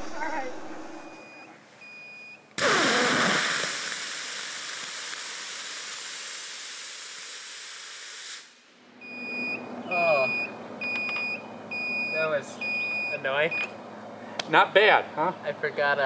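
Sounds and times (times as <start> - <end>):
rocket motor roaring: 0.0 - 1.5, 2.6 - 5.0.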